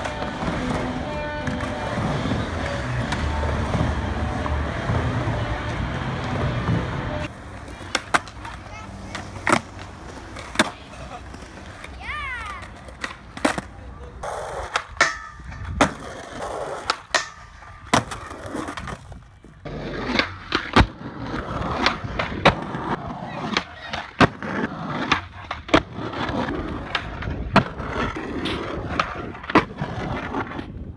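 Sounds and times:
skateboard clacks: 0.0 - 30.9
skateboard rolling on concrete: 0.0 - 30.9
board scraping concrete ledge: 12.6 - 30.9.

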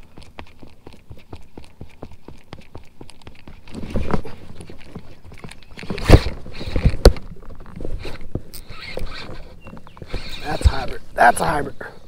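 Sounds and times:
knocks and handling noise: 3.7 - 10.3
fishing reel reeling: 8.0 - 10.9.

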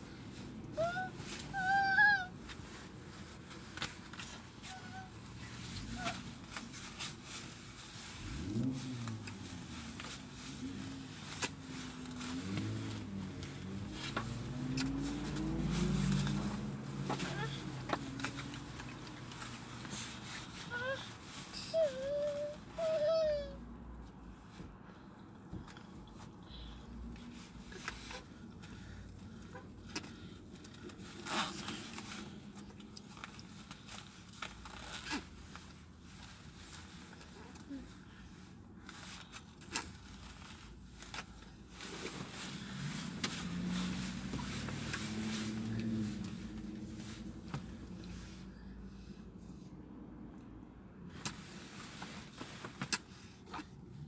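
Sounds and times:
car engine running: 5.2 - 20.8.

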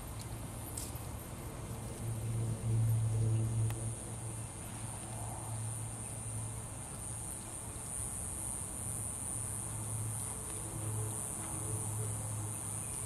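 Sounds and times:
steady high hiss: 0.0 - 13.0
steady low hum: 0.0 - 13.0
soft hoofbeats on grass: 9.4 - 13.0.

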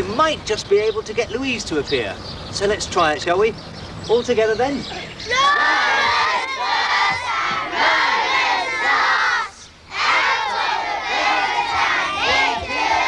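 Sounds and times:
children chanting: 5.2 - 13.0.

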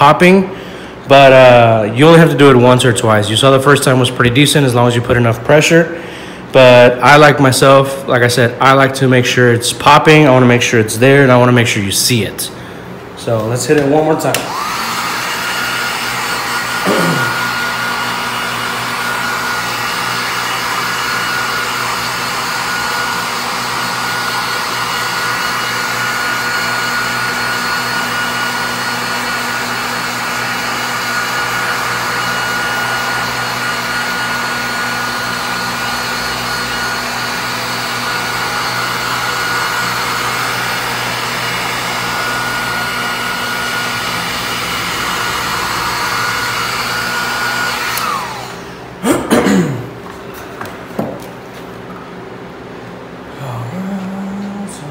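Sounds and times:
heat gun blowing with whine: 12.9 - 49.6.

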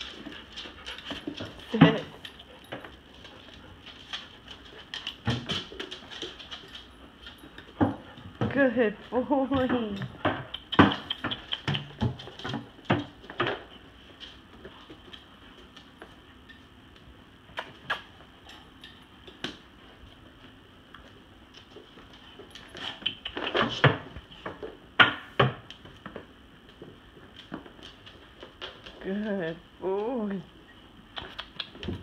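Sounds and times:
dogs tapping and knocking toys: 0.0 - 16.2, 21.5 - 29.4.

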